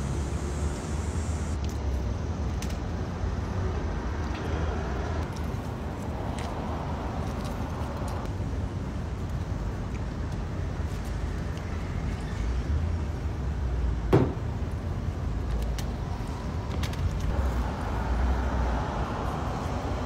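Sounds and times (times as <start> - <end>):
road traffic rumble: 0.0 - 20.0
sharp knock: 14.1 - 14.4.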